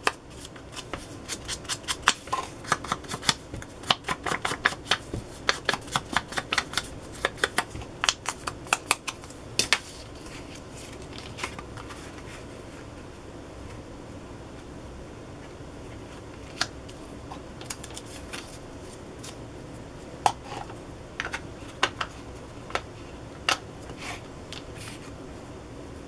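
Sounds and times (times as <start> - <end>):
clicks and taps handling paper: 0.0 - 9.8.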